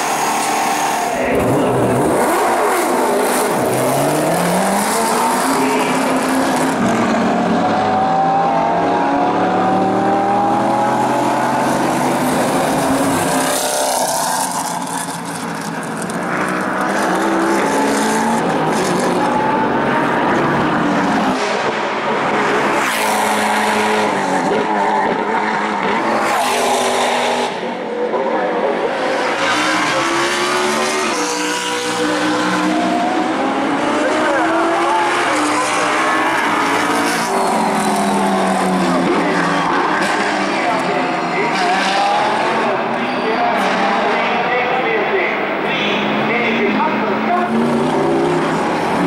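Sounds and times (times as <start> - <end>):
race car engine accelerating: 0.0 - 44.4.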